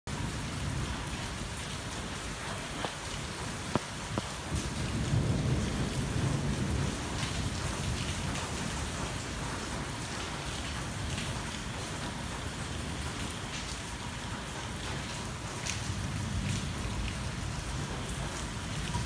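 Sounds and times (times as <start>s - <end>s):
rain on car roof: 0.1s - 19.0s
sharp raindrop taps: 2.4s - 12.1s
low thunder rumble: 4.4s - 9.9s.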